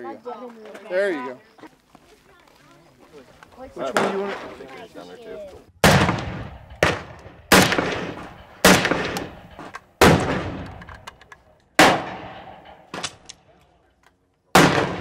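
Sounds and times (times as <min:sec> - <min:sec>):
gunshots with echoing tail: 0:05.8 - 0:10.9, 0:11.8 - 0:13.3, 0:14.6 - 0:15.0.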